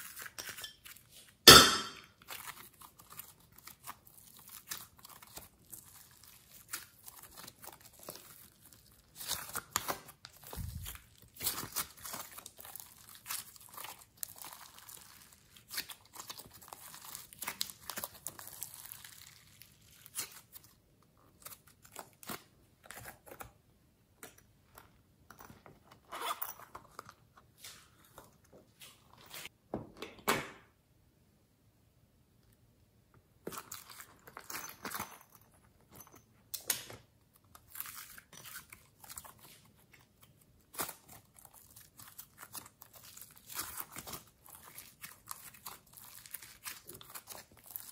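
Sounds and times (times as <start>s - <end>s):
hands squishing slime: 2.2s - 22.5s, 37.6s - 47.9s.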